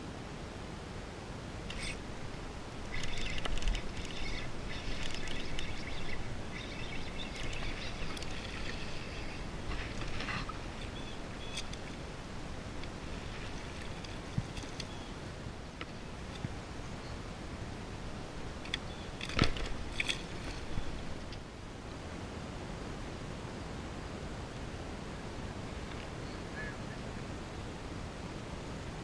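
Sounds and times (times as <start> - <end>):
fishing reel whirring: 1.7 - 11.9, 12.8 - 15.0, 18.7 - 21.1.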